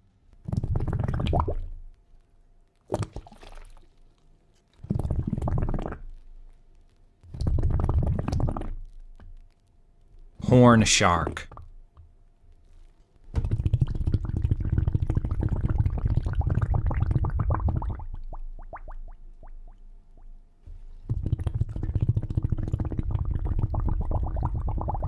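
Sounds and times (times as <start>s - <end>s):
underwater bubbling: 0.5s - 1.8s, 4.9s - 6.1s, 7.4s - 8.8s, 13.4s - 20.3s, 21.1s - 25.0s.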